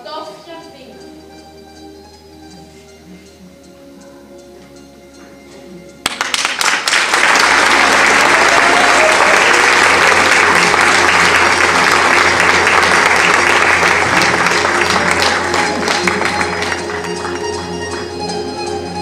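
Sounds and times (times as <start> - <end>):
audience applauding: 6.0 - 18.5.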